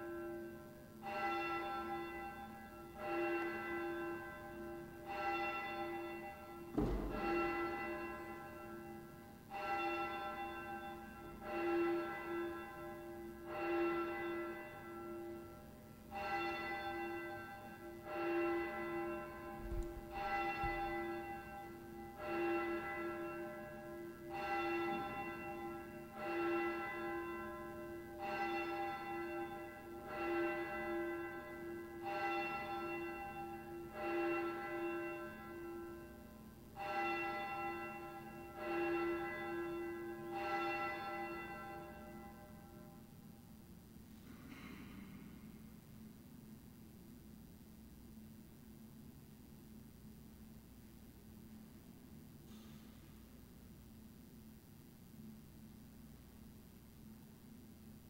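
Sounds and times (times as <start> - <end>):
church bell tolling: 0.0 - 43.1.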